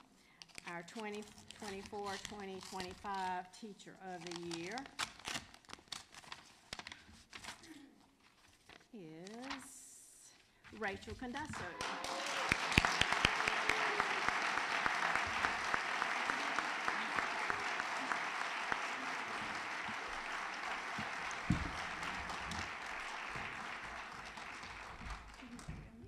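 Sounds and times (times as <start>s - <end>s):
audience applauding: 11.6s - 26.0s.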